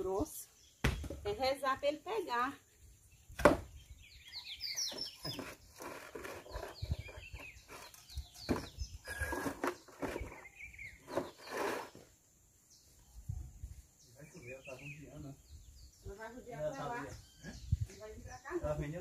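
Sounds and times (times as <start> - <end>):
birds chirping: 0.0 - 19.0
knocks from outdoor work: 0.8 - 1.4, 3.3 - 3.8, 4.8 - 10.4.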